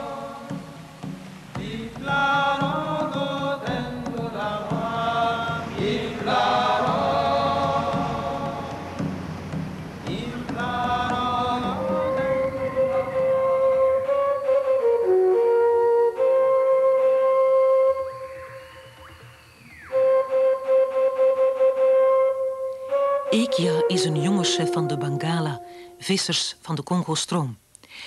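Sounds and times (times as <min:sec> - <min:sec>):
voices chanting: 0:00.0 - 0:00.9, 0:01.6 - 0:14.4
long held note: 0:10.7 - 0:26.1.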